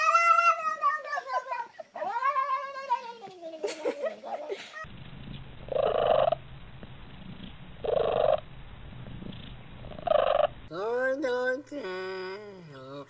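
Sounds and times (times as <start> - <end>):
cat purring: 5.6 - 8.4, 9.0 - 10.6.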